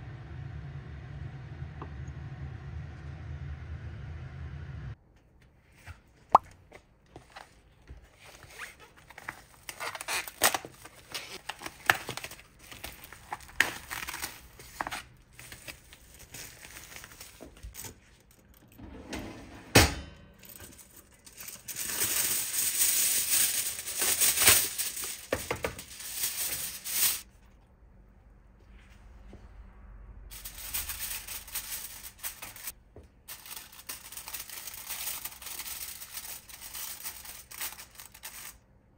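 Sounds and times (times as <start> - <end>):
food packaging crinkling: 8.2 - 18.6, 20.7 - 27.3, 33.3 - 38.6
aluminium foil tearing and crinkling: 8.8 - 18.6, 20.7 - 27.3, 30.3 - 32.7, 33.3 - 38.6.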